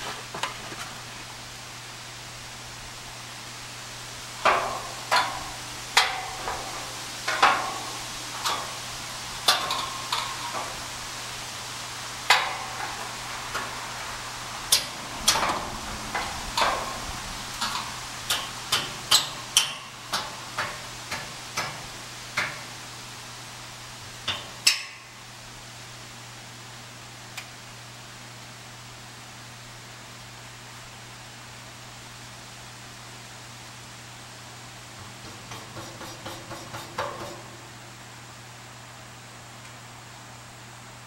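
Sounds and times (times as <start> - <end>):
sharp knocks and clanks: 4.4 - 6.7, 17.6 - 22.7, 35.0 - 37.6.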